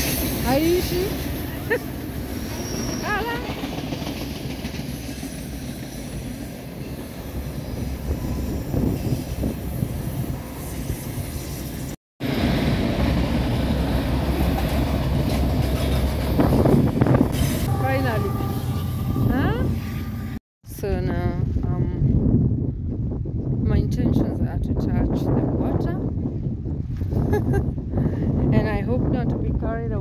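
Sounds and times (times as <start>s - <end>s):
train wheels rumbling on rails: 0.0s - 19.9s.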